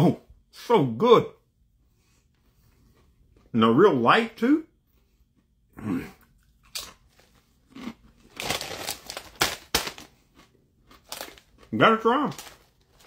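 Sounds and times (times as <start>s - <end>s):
chips crunching being chewed: 6.1s - 13.0s.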